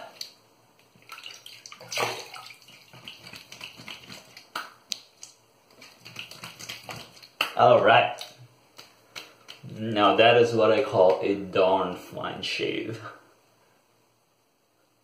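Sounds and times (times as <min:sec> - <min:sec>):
hands splashing water in sink: 0:00.2 - 0:07.6.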